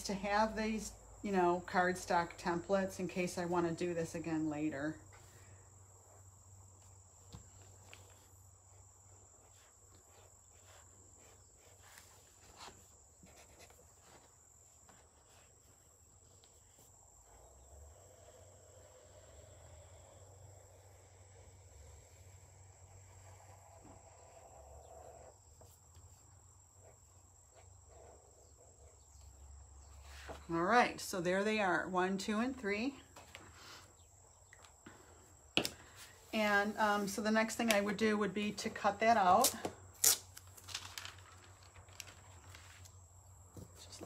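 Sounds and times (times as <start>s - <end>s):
pen strokes on paper: 9.0s - 24.4s.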